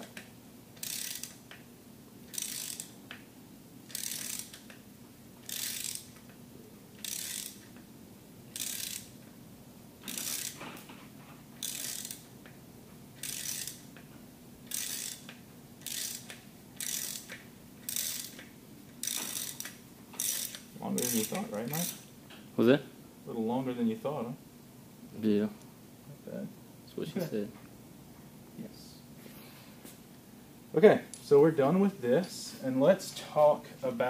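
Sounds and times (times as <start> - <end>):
socket ratchet clicking: 0.8 - 1.6, 2.3 - 3.2, 3.9 - 4.8, 5.4 - 6.4, 7.0 - 7.8, 8.5 - 9.2, 10.1 - 10.6, 11.6 - 12.2, 13.2 - 13.8, 14.6 - 22.0.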